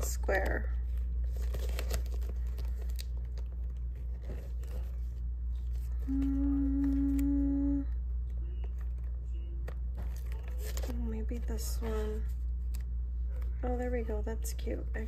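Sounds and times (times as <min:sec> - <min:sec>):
low steady hum: 0:00.0 - 0:15.0
person humming a note: 0:06.0 - 0:08.0
sticker sheets rustling: 0:08.2 - 0:14.2.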